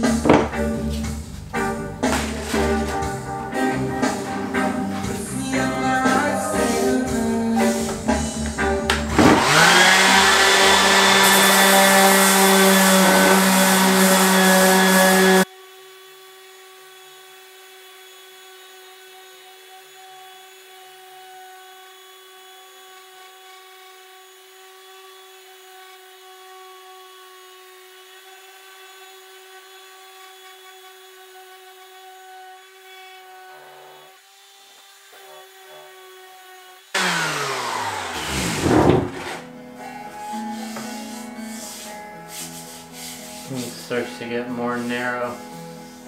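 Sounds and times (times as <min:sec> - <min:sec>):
loud music: 0:00.0 - 0:15.4
sandpaper hissing on wood: 0:04.0 - 0:08.1, 0:09.7 - 0:15.5, 0:37.9 - 0:44.2, 0:44.8 - 0:46.0
orbital sander motor whine: 0:09.2 - 0:39.4.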